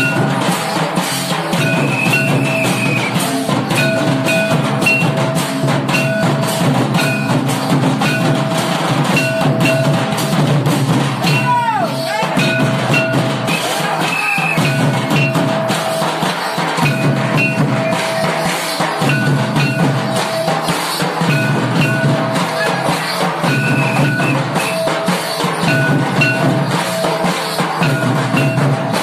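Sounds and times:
hand drums beating fast: 0:00.0 - 0:29.0
high held tone: 0:01.5 - 0:10.2, 0:16.8 - 0:29.0.

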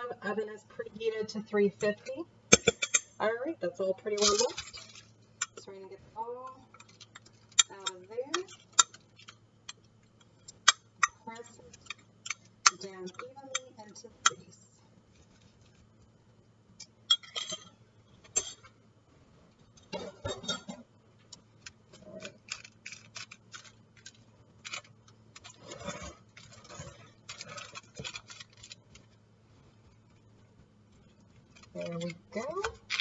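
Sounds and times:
faint steady hum: 0:00.0 - 0:33.0
aluminium foil crinkling: 0:04.1 - 0:05.6, 0:06.7 - 0:07.7, 0:21.3 - 0:33.0
crumbs scraping: 0:21.6 - 0:30.3.

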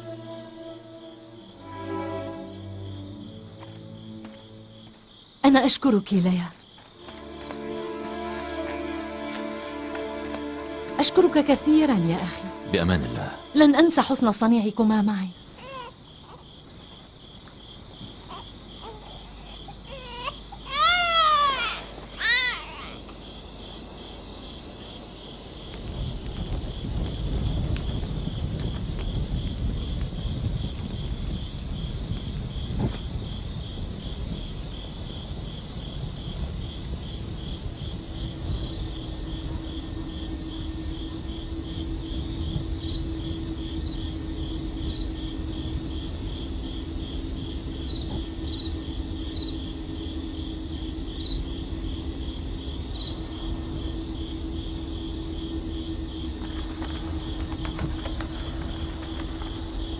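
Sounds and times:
crickets chirping: 0:00.0 - 0:59.9
low background rumble: 0:25.8 - 0:59.9
low steady hum: 0:36.4 - 0:59.9.

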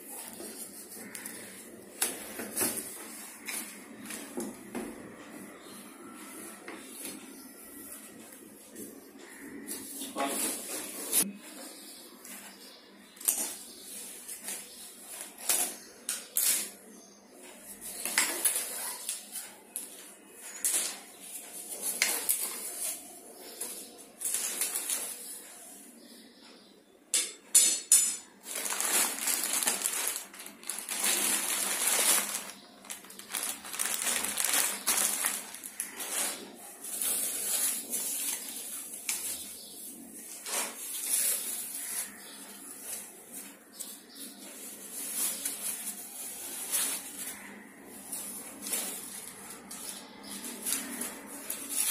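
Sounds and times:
plastic wrap crinkling: 0:17.7 - 0:25.4, 0:28.4 - 0:51.9.

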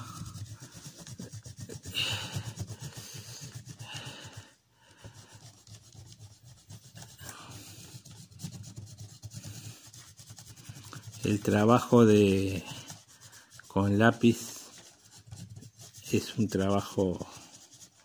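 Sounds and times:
pencil shading on paper: 0:00.0 - 0:18.0.

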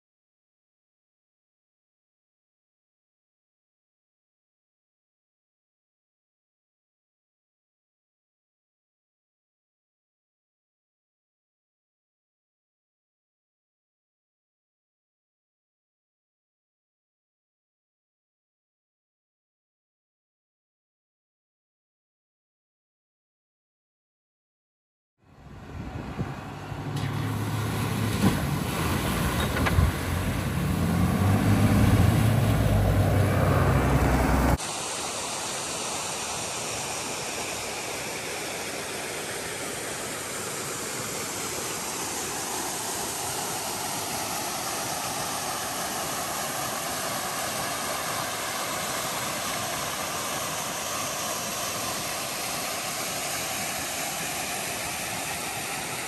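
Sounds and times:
small waterfall rushing: 0:27.0 - 0:56.0.

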